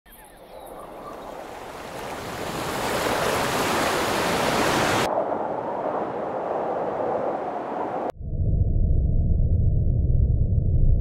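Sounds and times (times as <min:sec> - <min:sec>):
river water rushing: 0:01.1 - 0:05.1.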